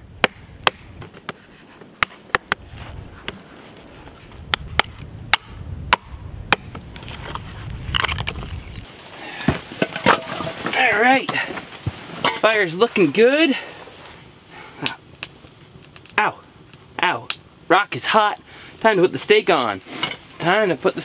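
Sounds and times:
sharp knocks and cracks: 0:00.2 - 0:01.4, 0:02.0 - 0:02.6, 0:04.5 - 0:07.0
low rumble: 0:02.6 - 0:08.9.

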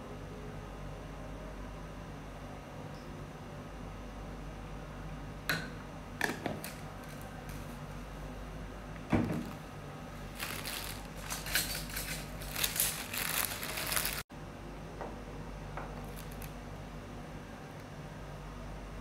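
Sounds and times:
plastic bag crinkling: 0:10.3 - 0:14.3, 0:16.0 - 0:16.6.

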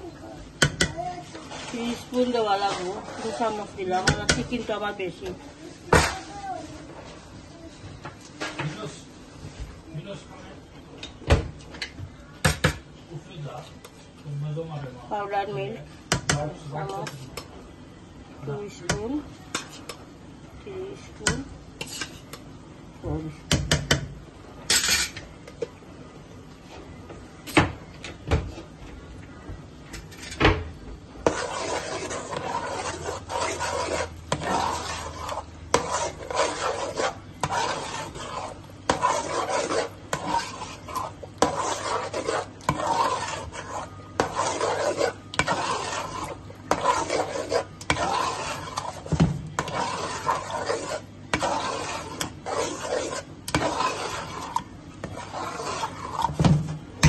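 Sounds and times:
metal spoon scraping pot: 0:01.4 - 0:04.9, 0:21.8 - 0:22.4, 0:31.2 - 0:56.5.

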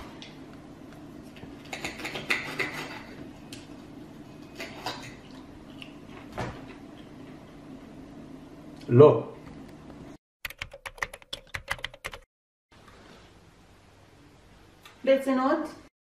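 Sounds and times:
knife and fork scraping a plate: 0:01.7 - 0:03.2.

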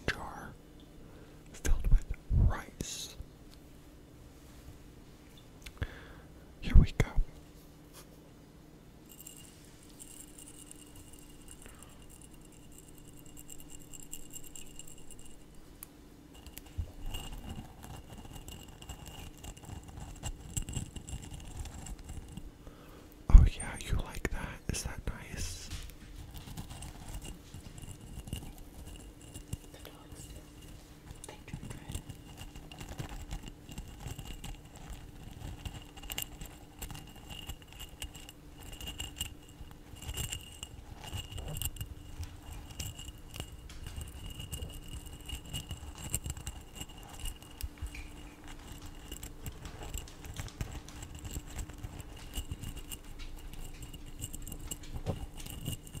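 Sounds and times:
dried herbs rustling in glass jar: 0:09.0 - 0:22.6, 0:23.4 - 0:56.0
glass jar clicks and bumps: 0:09.1 - 0:15.6, 0:16.3 - 0:22.5, 0:25.7 - 0:56.0.

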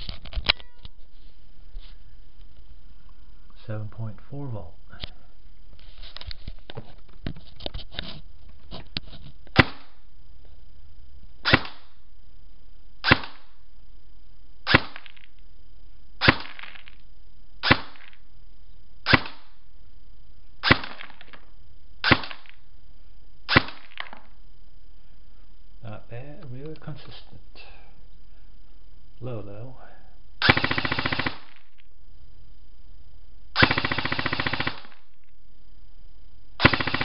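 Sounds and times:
airsoft gun shots: 0:09.5 - 0:10.0, 0:11.4 - 0:12.0, 0:13.0 - 0:13.6, 0:14.6 - 0:15.2, 0:16.2 - 0:16.8, 0:17.6 - 0:18.2, 0:19.0 - 0:19.6, 0:20.6 - 0:21.3, 0:22.0 - 0:22.6, 0:23.5 - 0:24.2, 0:30.4 - 0:31.6, 0:33.6 - 0:35.0, 0:36.6 - 0:37.0.

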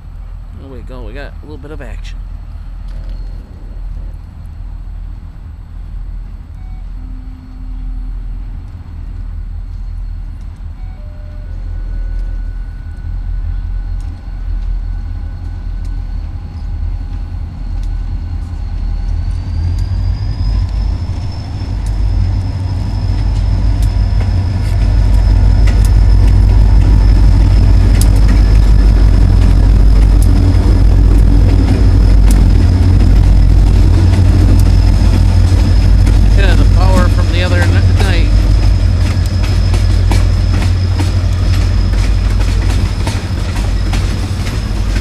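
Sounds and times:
diesel locomotive passing: 0:00.0 - 0:45.0
high whine: 0:11.7 - 0:45.0.

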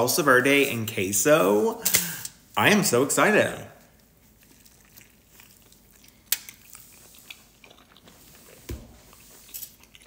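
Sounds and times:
person chewing food: 0:03.9 - 0:10.0.

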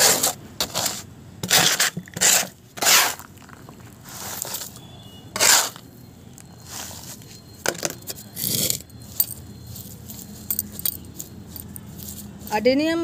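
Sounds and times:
bangles jingling: 0:07.3 - 0:13.0.

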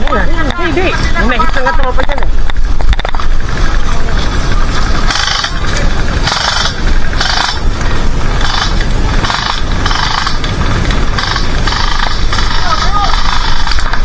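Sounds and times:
steady low rumble: 0:00.0 - 0:14.0
airsoft guns firing bursts: 0:08.4 - 0:10.4, 0:11.1 - 0:13.8.

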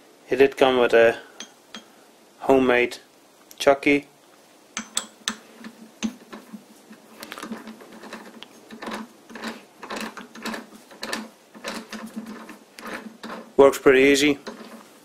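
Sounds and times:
lathe chuck metal clicks: 0:14.4 - 0:14.8.

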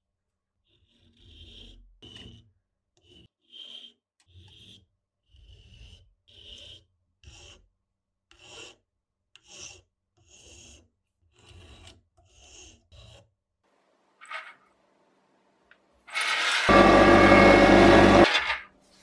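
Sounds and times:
hand file rasping on metal: 0:00.6 - 0:13.4.

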